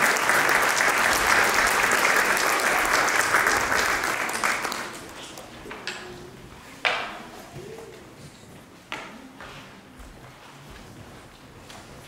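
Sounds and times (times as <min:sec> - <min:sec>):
audience applauding: 0:00.0 - 0:05.3.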